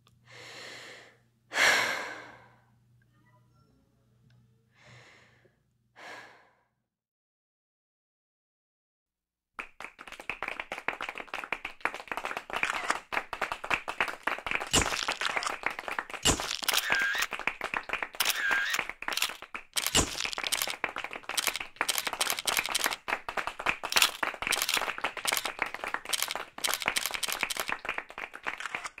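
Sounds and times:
audience applauding: 9.6s - 29.0s.

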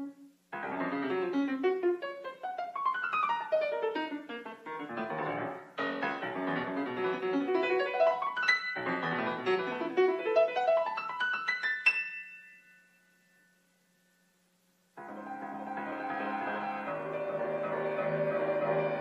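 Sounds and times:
solo piano: 0.0s - 12.4s, 15.0s - 19.0s.

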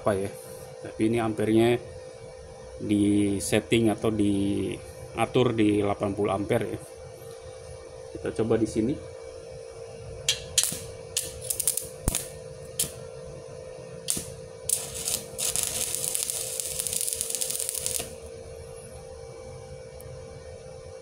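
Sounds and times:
electrode striking steel: 10.3s - 13.0s, 14.1s - 18.3s
welding arc crackling: 10.6s - 13.0s, 14.0s - 18.3s.

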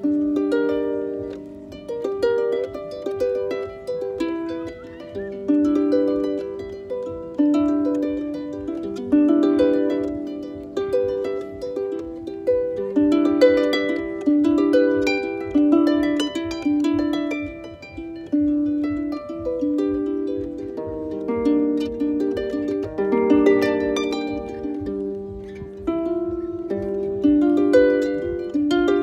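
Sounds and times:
harp plucked: 0.0s - 29.0s.

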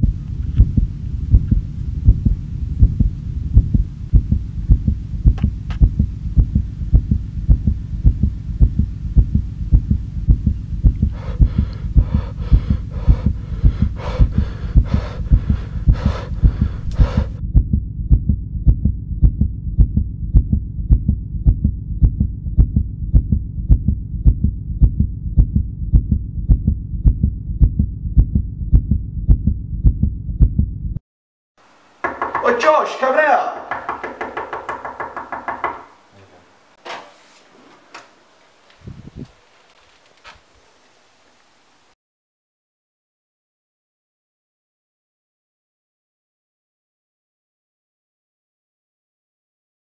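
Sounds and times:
heartbeat thumps: 0.0s - 31.0s.

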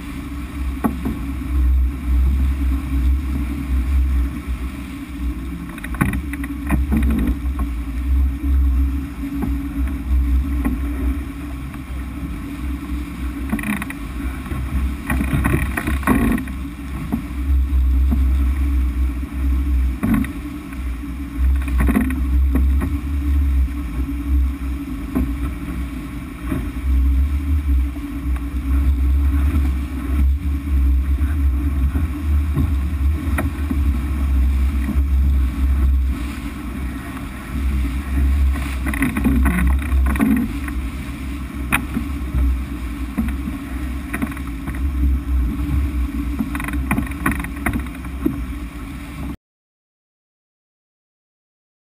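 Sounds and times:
wind and water rushing: 0.0s - 49.4s
sharp knocks and splashes: 0.7s - 1.3s, 5.6s - 7.8s, 13.4s - 17.4s, 19.8s - 23.2s, 29.2s - 36.5s, 37.1s - 41.0s, 41.6s - 44.9s, 45.6s - 48.5s.

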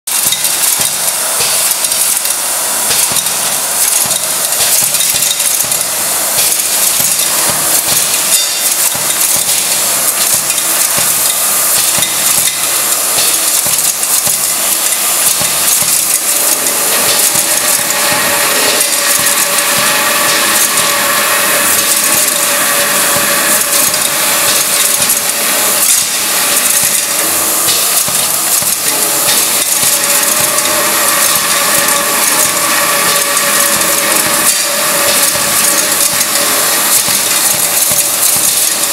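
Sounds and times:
metal parts clinking and rattling: 23.6s - 38.9s.

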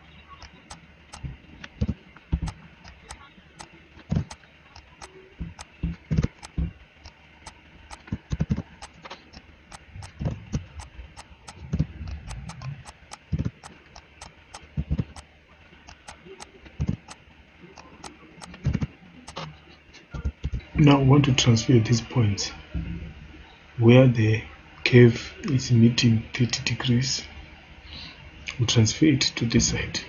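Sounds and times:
computer keyboard keystrokes: 0.4s - 6.7s, 7.9s - 9.0s, 9.7s - 15.2s, 15.9s - 17.2s, 17.8s - 19.4s
mouse clicks: 9.7s - 15.3s, 15.9s - 17.2s.

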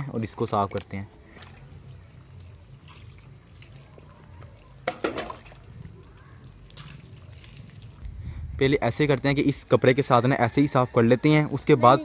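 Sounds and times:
water trickling over solar panel: 0.0s - 8.2s.

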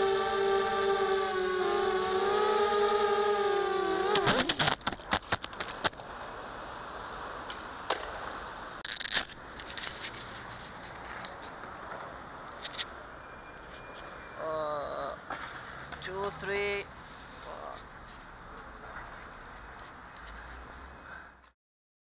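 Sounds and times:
drone motors whining: 0.0s - 4.8s
low steady hiss: 5.7s - 13.4s.

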